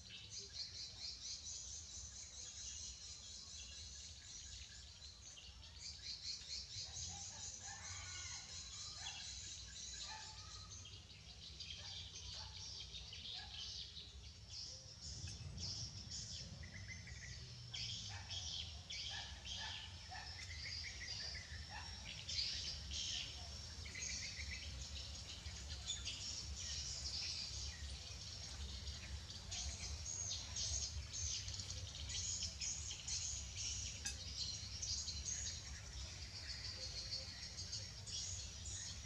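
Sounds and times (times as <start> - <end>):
birds chirping: 9.2 - 39.0.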